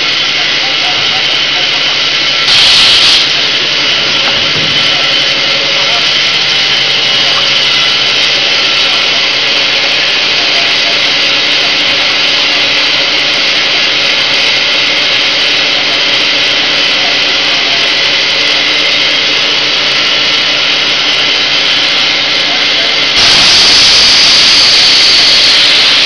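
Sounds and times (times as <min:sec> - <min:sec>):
machine hum: 0:00.0 - 0:23.6
machine hissing: 0:00.0 - 0:26.0.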